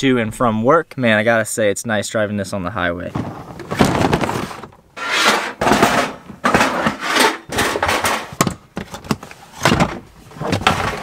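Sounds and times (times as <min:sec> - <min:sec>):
plastic tote clattering: 0:03.1 - 0:11.0.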